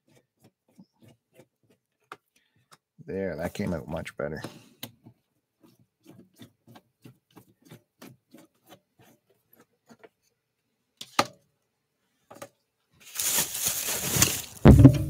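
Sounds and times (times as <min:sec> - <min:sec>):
microphone rustling bump: 0:13.2 - 0:15.0
sharp knock: 0:14.6 - 0:15.0.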